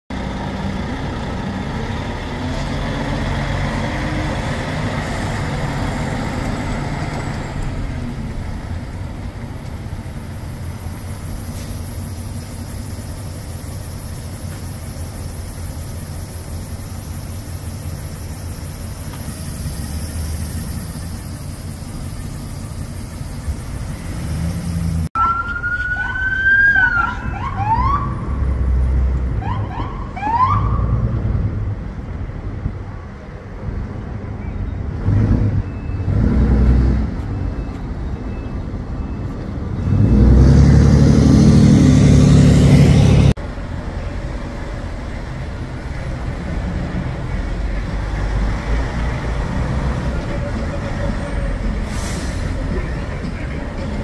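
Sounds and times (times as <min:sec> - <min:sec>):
truck diesel engine rumbling: 0:00.1 - 0:54.0
police sirens whooping: 0:25.2 - 0:28.4, 0:29.4 - 0:31.0.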